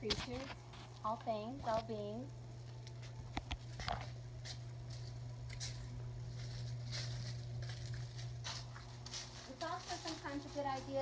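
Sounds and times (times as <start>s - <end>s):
low hum: 0.0s - 11.0s
footsteps on dry leaves: 2.6s - 11.0s.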